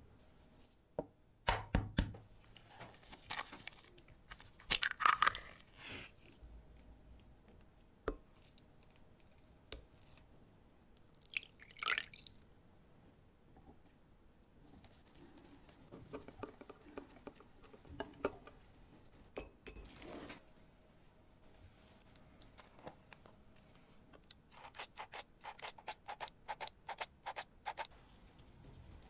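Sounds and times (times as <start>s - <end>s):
milk pouring into bowl: 11.0s - 12.4s.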